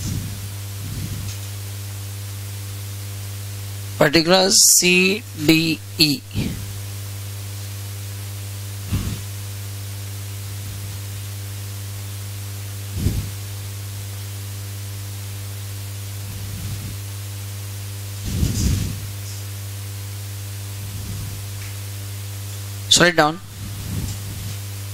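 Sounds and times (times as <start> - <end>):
electrical hum and hiss: 0.0 - 24.9.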